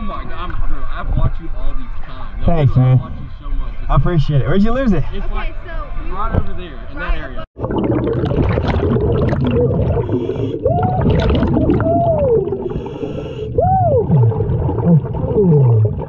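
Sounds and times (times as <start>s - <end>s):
exhaled bubbles rumbling underwater: 7.6s - 16.0s
muffled hooting tones: 9.9s - 11.1s, 11.8s - 15.9s
breath hissing through regulator: 12.5s - 13.6s.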